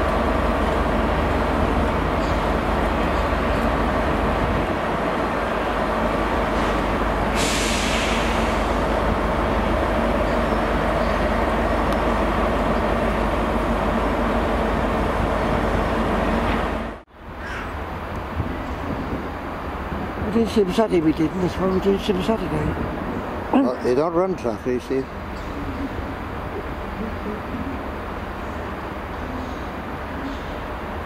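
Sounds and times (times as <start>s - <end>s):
diesel locomotive engine running: 0.0s - 31.0s
hiss of air: 6.6s - 8.8s.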